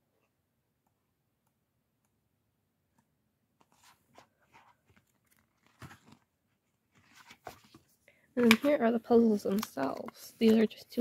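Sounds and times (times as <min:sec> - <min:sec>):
book pages rustling: 0:03.6 - 0:11.0
card pages tapping: 0:06.9 - 0:11.0.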